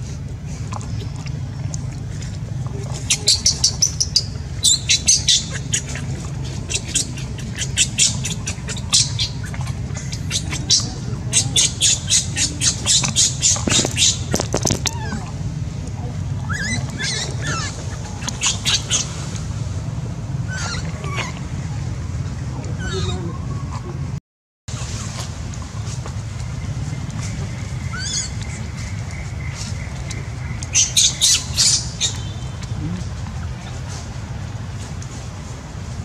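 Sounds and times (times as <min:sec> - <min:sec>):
steady low hum: 0:00.0 - 0:36.0
animal squeaky chirps: 0:03.0 - 0:15.3, 0:16.4 - 0:19.1, 0:20.5 - 0:21.4, 0:22.8 - 0:23.8, 0:27.8 - 0:28.6, 0:30.7 - 0:32.3.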